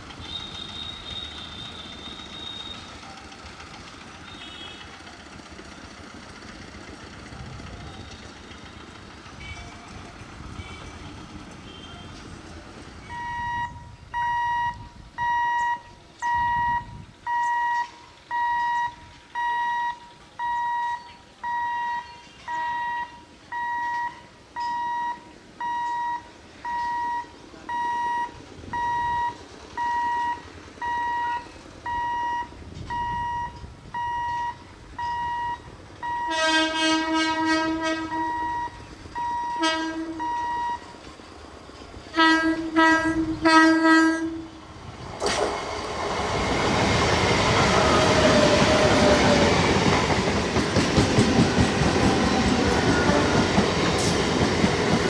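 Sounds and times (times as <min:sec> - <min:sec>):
two-tone crossing warning beep: 0:00.2 - 0:03.4, 0:13.0 - 0:36.7, 0:37.8 - 0:41.0
train horn blasts: 0:04.3 - 0:04.9, 0:36.1 - 0:38.8, 0:39.4 - 0:40.5, 0:42.1 - 0:44.6.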